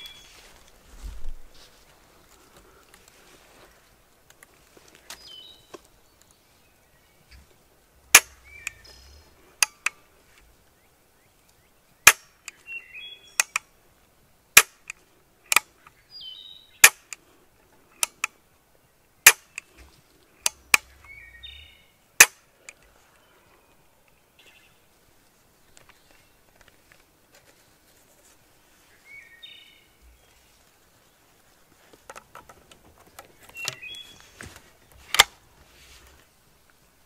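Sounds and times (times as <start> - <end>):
soft bird calls: 0.0 - 2.9, 4.7 - 13.7, 14.8 - 25.0, 28.5 - 31.6, 33.0 - 36.1
shotgun hammer clicks: 13.4 - 13.6, 18.0 - 18.3.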